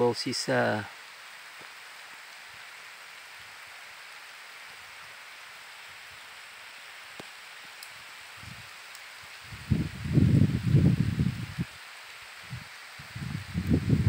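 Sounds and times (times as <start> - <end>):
steady rain hiss: 0.0 - 14.0
faint ticks: 7.1 - 9.1.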